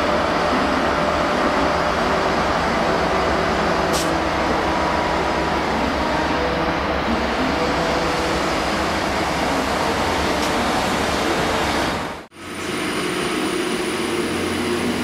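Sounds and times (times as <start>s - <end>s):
train rumble and hiss: 0.0s - 15.0s.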